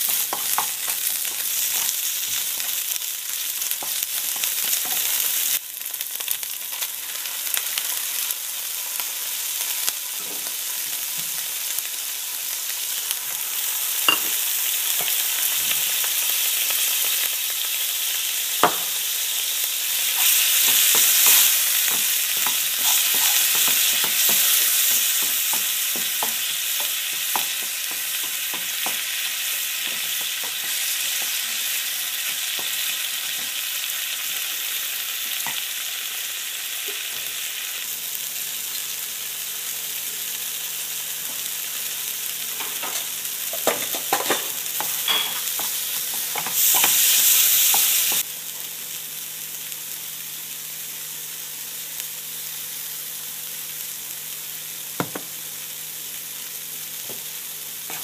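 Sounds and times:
masala sizzling in oil: 0.0 - 58.0
spatula scraping pan: 20.2 - 32.8.

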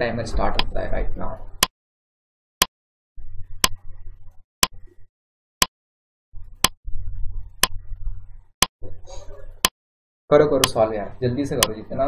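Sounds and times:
timer ticking clicks: 6.6 - 6.8, 11.6 - 11.8.

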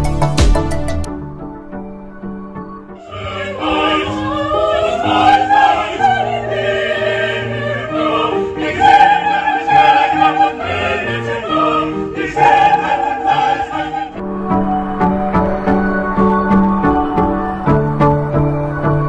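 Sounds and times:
woman singing operatically: 3.0 - 14.2.

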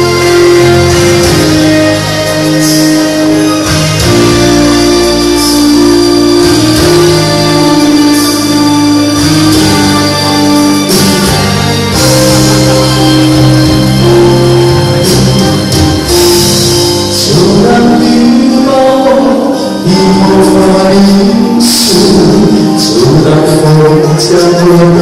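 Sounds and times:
pop backing track over speakers: 0.0 - 25.0
man singing into a microphone: 17.1 - 25.0.

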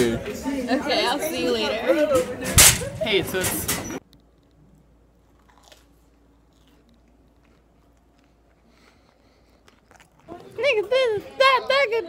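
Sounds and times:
faint chewing: 4.0 - 11.4.

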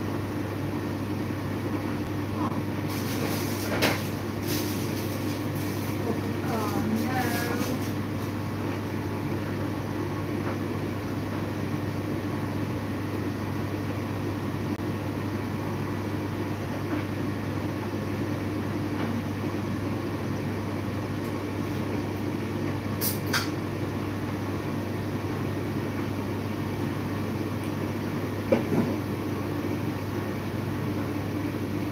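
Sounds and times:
appliance humming: 0.0 - 31.9.

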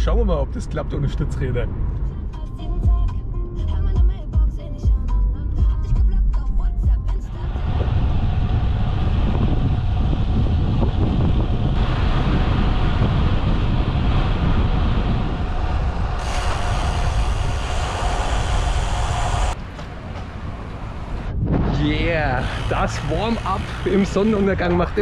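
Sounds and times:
music: 1.9 - 7.8
bike tyre rumble: 7.3 - 25.0
wind rushing over microphone: 7.3 - 25.0.

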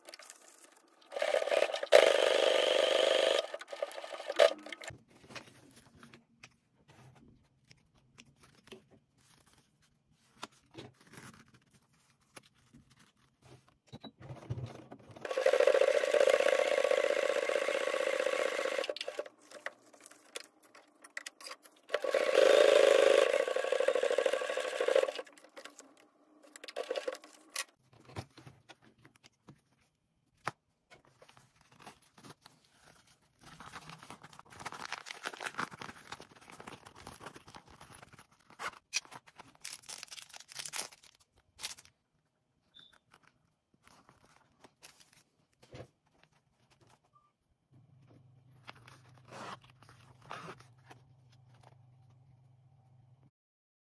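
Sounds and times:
sewing machine stitching: 1.1 - 4.9, 14.2 - 19.3, 21.9 - 25.7, 26.5 - 27.4.

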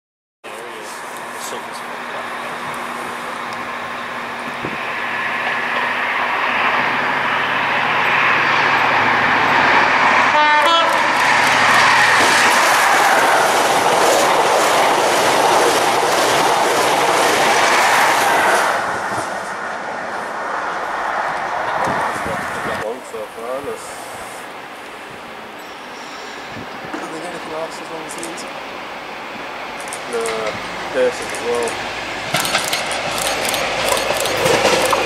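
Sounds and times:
diesel train engine: 0.5 - 35.0
train horn blast: 10.2 - 11.4
train wheels clattering over track: 11.0 - 19.4, 29.8 - 35.0.

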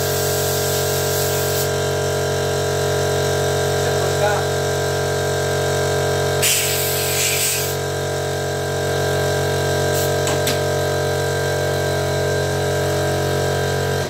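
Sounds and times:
compressed air hissing: 0.0 - 1.8, 6.4 - 7.9, 9.9 - 10.3
air compressor running: 0.0 - 14.0.

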